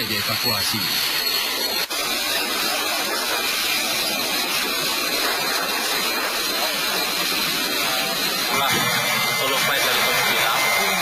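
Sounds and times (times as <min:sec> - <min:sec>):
jet engines rushing hiss: 0:00.0 - 0:11.0.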